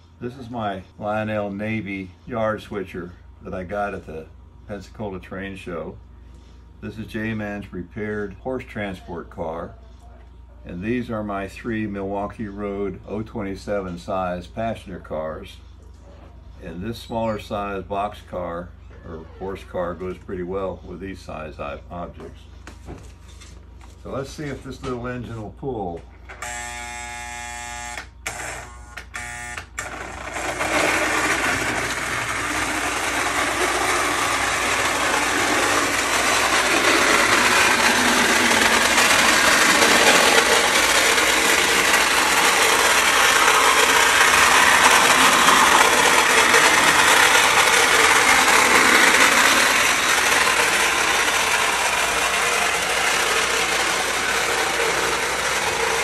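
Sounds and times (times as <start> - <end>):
buzzing hum: 26.3 - 56.0
toy locomotive motor and gears: 26.3 - 56.0.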